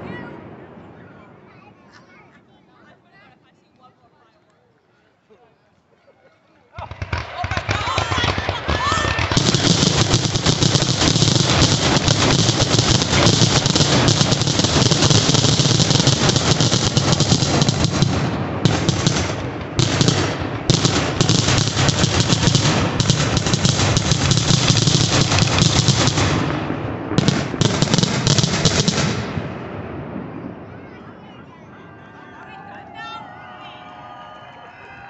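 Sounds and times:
fireworks bangs and crackles: 6.8s - 31.5s.

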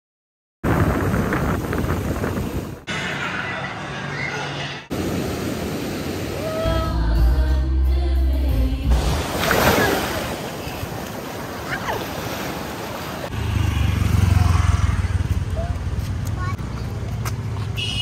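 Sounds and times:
sea surf washing in: 4.9s - 7.1s, 8.8s - 14.2s
music: 6.7s - 9.0s.

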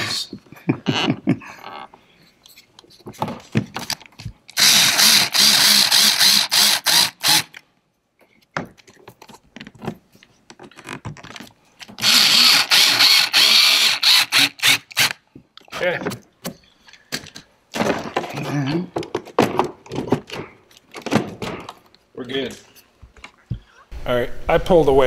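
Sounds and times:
cordless drill driving screws: 4.6s - 7.6s, 12.0s - 15.2s.

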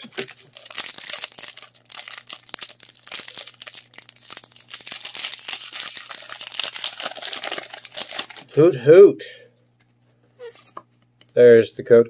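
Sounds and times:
foil wrapper crinkling and tearing: 0.0s - 8.6s.

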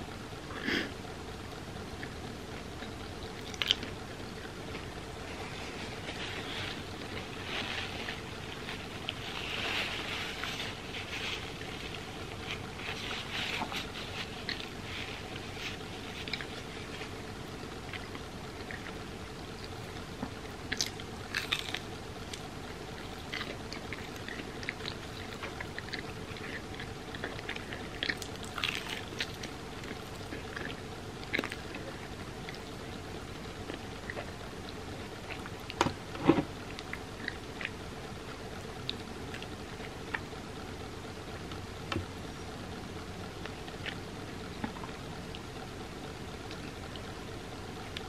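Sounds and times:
faint steady hum: 0.0s - 48.0s
person chewing: 2.8s - 33.0s.

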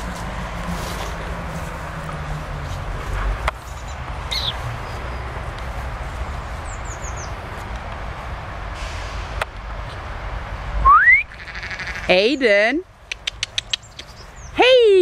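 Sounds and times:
bird chirping: 3.6s - 5.3s, 6.5s - 7.4s, 11.2s - 14.6s
sharp clicks: 13.0s - 14.2s.

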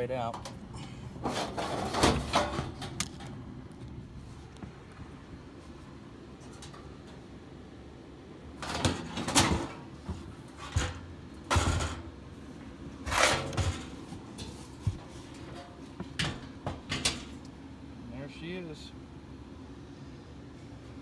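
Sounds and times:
metal scrapes and knocks: 1.2s - 3.0s.

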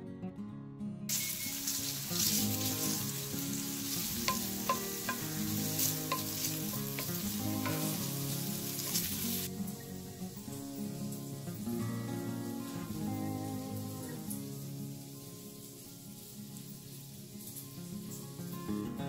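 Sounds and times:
soft guitar music: 0.0s - 19.0s
bacon sizzling in a skillet: 1.1s - 19.0s
wooden spoon stirring: 1.7s - 9.4s.

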